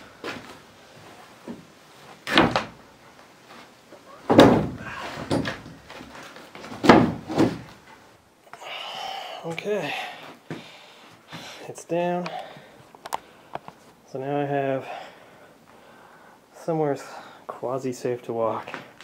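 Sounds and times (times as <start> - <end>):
heavy objects thudding on wooden floor: 2.3 - 2.8, 4.2 - 7.9.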